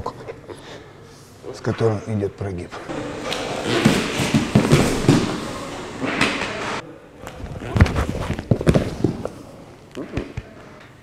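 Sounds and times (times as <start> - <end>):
bodies scuffling on mats: 2.8 - 6.8, 7.5 - 9.5
knee thumping onto mat: 3.0 - 6.8.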